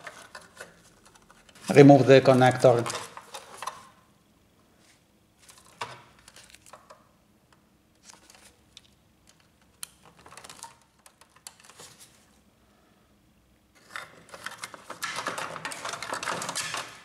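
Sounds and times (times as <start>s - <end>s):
plastic gloves crinkling: 5.4s - 6.8s.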